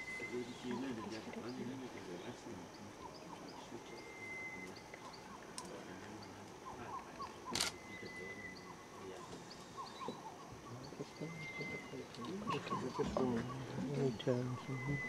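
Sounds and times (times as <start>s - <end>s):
thin high whistling tone: 0.0s - 0.9s, 3.8s - 4.9s, 7.7s - 8.8s, 11.2s - 12.1s, 13.0s - 15.0s
small chirps and calls: 0.0s - 15.0s.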